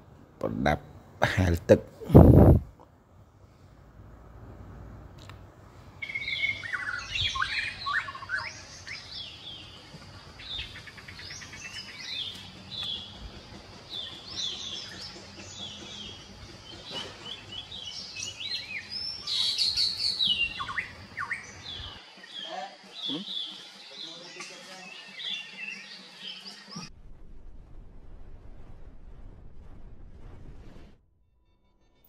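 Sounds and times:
bird trill: 6.0 - 26.8
birds chirping and twittering: 6.0 - 26.9.

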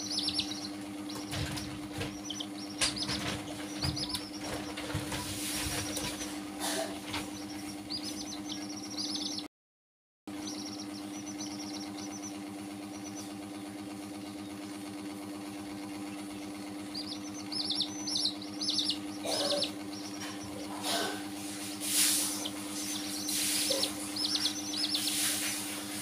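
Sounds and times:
chicks peeping: 0.0 - 9.5, 10.3 - 14.7, 16.1 - 26.0
steady low hum: 0.0 - 9.5, 10.3 - 26.0.

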